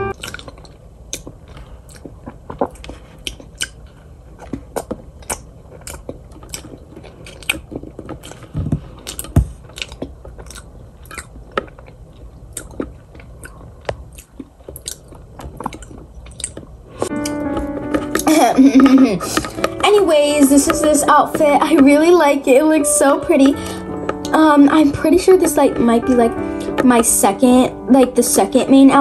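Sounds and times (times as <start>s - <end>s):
cookie crunching while chewed: 0.1s - 17.4s.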